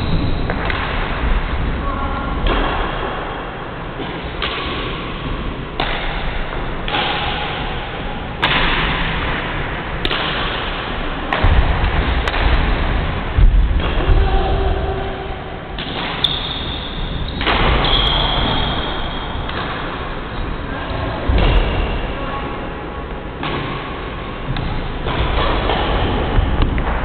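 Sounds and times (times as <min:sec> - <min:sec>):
rackets hitting shuttlecock: 0:00.5 - 0:01.1, 0:02.4 - 0:03.0, 0:04.0 - 0:13.0, 0:15.8 - 0:20.2, 0:23.4 - 0:27.0.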